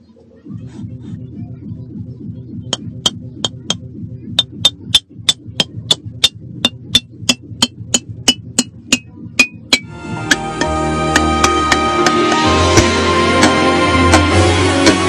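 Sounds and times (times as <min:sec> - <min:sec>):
hammer striking ceramic: 0:02.7 - 0:03.8, 0:04.4 - 0:15.0.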